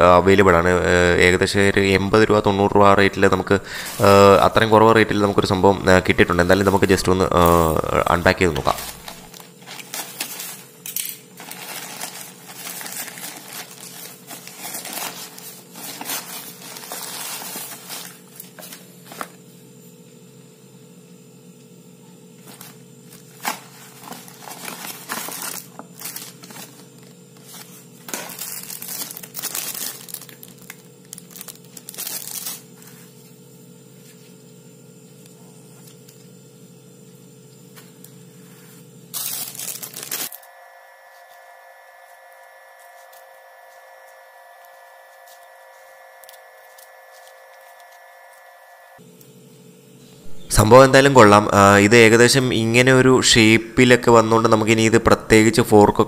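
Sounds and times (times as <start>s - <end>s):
plastic mailer bag crinkling: 6.2s - 19.4s, 22.4s - 33.0s, 39.1s - 40.5s, 46.2s - 48.4s
cardboard box and plastic handled: 23.4s - 26.8s.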